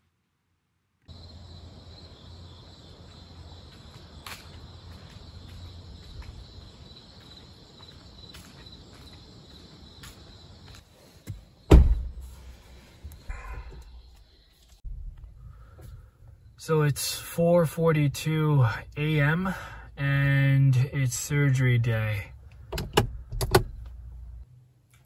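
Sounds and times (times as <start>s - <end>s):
crickets chirring: 1.1s - 16.9s
car door shutting: 11.7s - 12.4s
low hum: 12.0s - 16.7s.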